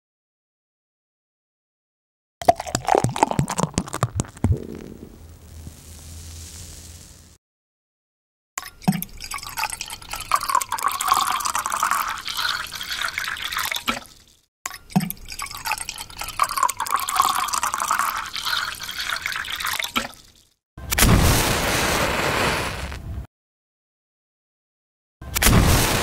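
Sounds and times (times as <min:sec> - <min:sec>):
water poured into container: 0:02.4 - 0:05.8, 0:08.9 - 0:20.6
match struck and flaring: 0:04.7 - 0:07.4, 0:21.0 - 0:23.1.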